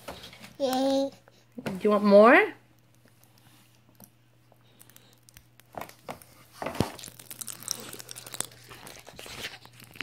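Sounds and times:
popping candy crackling in mouth: 2.7s - 10.0s.

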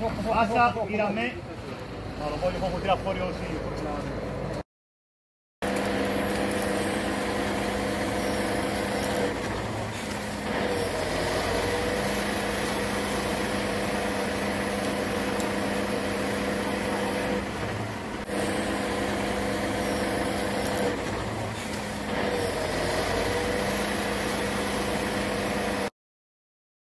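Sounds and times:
diesel truck engine under load: 5.6s - 25.9s.

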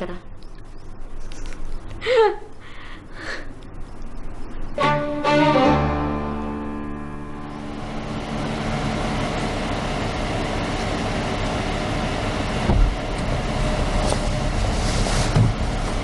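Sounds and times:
car engine idling: 7.3s - 14.7s
car door thump: 12.7s - 13.0s.

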